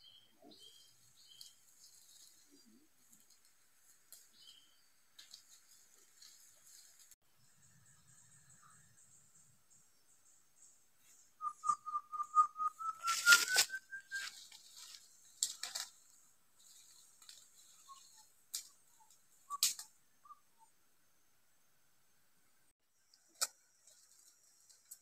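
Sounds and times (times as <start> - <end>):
bird whistling rising notes: 11.4 - 14.4
footsteps through leaf litter: 13.0 - 15.8.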